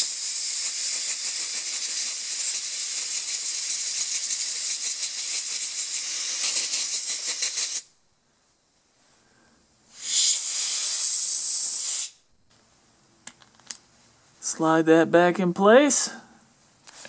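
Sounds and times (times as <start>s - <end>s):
air blow gun hissing: 0.0s - 7.9s, 9.9s - 12.2s.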